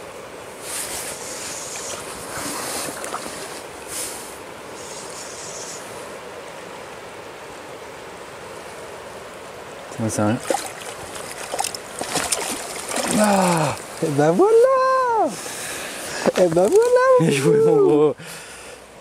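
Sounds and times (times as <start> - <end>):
river current rushing: 0.0 - 19.0
splashes at water surface: 10.3 - 14.0.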